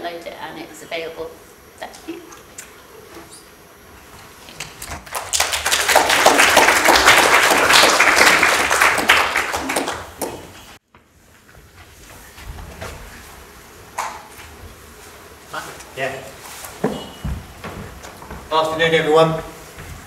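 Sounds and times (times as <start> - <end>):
audience applauding: 4.6 - 10.8.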